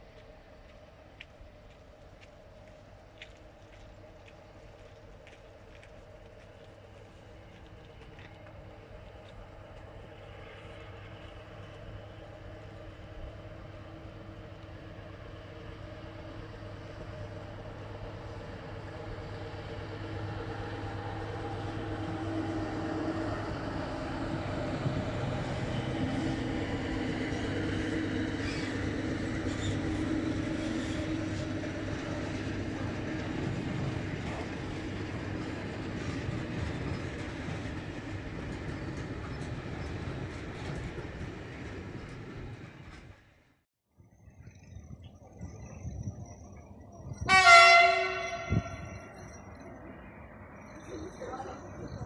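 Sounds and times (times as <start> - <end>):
diesel locomotive engine humming: 0.0 - 43.6, 44.5 - 52.0
freight train rolling past: 0.0 - 43.6, 44.5 - 52.0.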